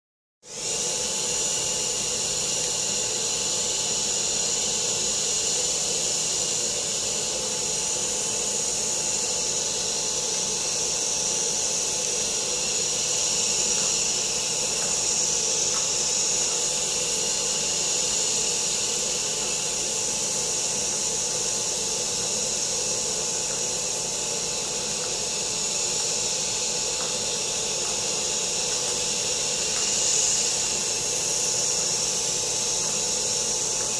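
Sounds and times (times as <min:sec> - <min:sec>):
electric motor whirring: 0:00.5 - 0:33.9.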